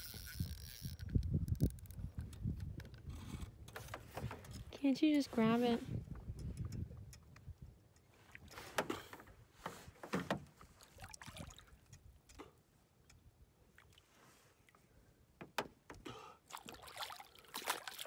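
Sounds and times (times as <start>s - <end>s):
fish splashing in water: 16.5s - 18.0s.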